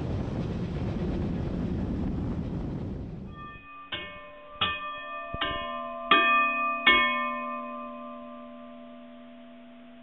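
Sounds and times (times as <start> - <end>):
bell chime: 3.3 - 10.0.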